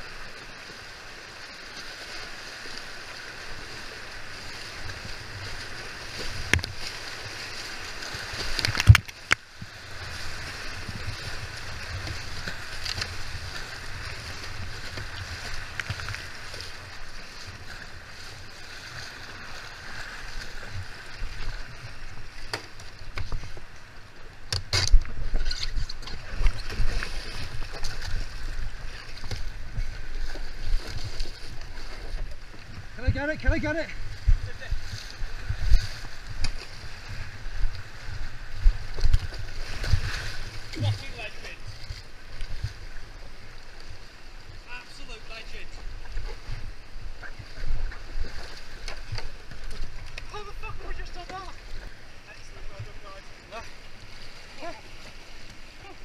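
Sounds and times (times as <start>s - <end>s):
paddle splashes: 0.0s - 56.0s
boat and paddle knocks: 6.2s - 6.8s.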